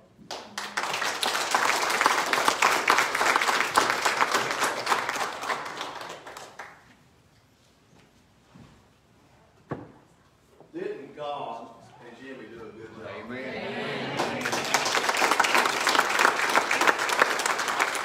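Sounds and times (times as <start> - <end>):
congregation applauding: 0.3 - 6.9, 14.0 - 18.0.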